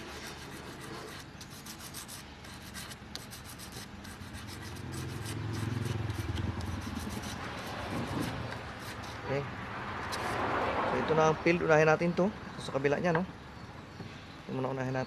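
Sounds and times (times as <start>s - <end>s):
scraping and rasping: 0.0s - 9.4s, 10.0s - 10.5s.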